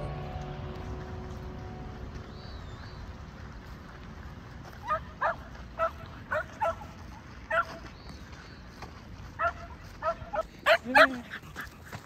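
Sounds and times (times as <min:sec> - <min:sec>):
steady low rumble: 0:00.0 - 0:10.3
dog barking: 0:04.8 - 0:07.8, 0:09.4 - 0:11.4.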